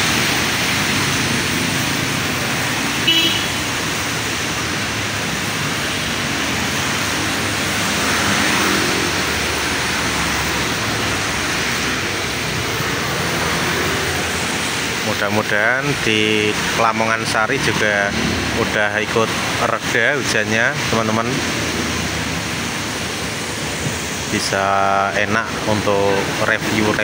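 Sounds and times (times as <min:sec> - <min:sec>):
cars and motorbikes passing: 0:00.0 - 0:27.0
tyres hissing on wet road: 0:00.0 - 0:27.0
short horn toot: 0:03.0 - 0:03.6.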